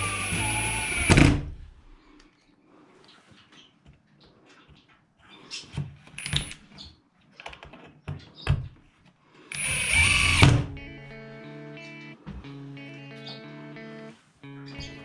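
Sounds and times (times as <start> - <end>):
power drill: 0.0 - 1.5, 9.5 - 10.6.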